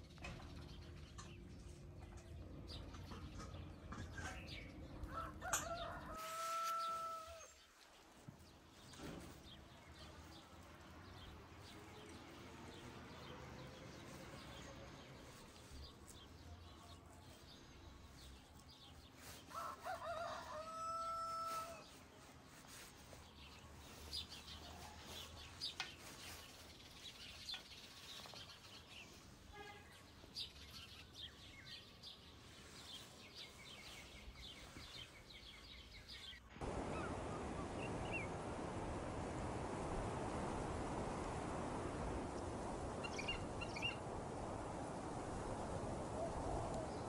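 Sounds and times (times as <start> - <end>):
rooster crowing: 5.0 - 7.6, 19.5 - 21.9.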